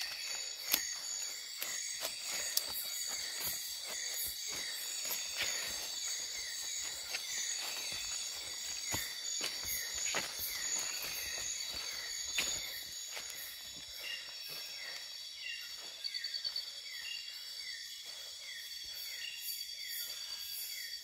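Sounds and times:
footsteps on leaf litter: 0.0s - 15.0s
insects buzzing: 0.0s - 21.0s
rapid pulsed insect trill: 0.0s - 21.0s.

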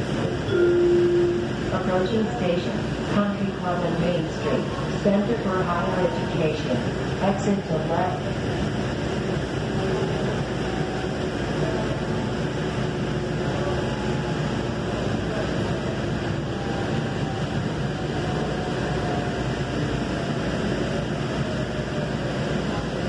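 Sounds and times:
rail car running noise: 0.0s - 23.0s
faint whine: 0.5s - 3.8s.

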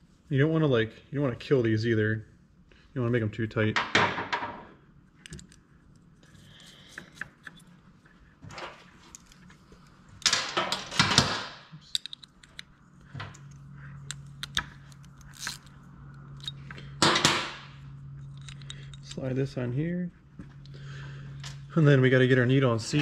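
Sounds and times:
low steady hum: 0.0s - 23.0s
small metal clicks and clinks: 11.8s - 12.7s
rattling and handling: 18.2s - 19.4s.

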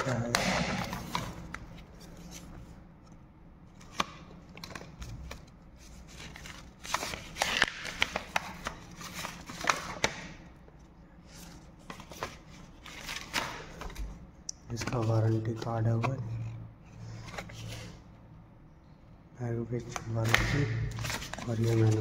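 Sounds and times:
paper cards rustling: 3.7s - 10.4s, 11.3s - 18.0s, 19.8s - 22.0s.

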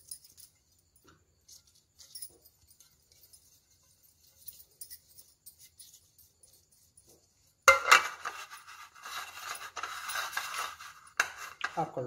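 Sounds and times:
metal cake tin clinking: 7.6s - 12.0s.

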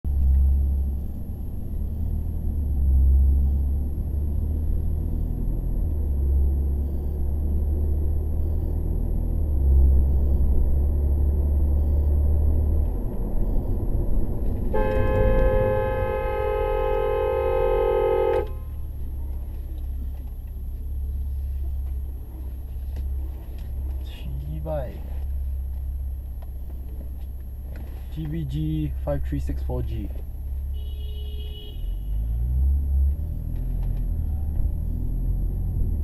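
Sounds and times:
car cabin road rumble: 0.0s - 36.0s
car horn honking: 14.7s - 18.9s, 30.7s - 32.6s.

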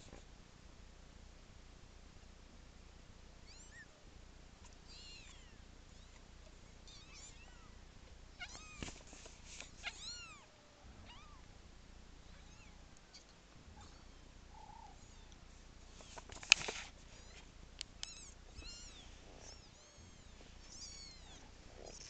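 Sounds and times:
kittens mewing: 4.6s - 6.2s, 9.7s - 11.5s, 12.3s - 15.4s, 18.0s - 22.0s.

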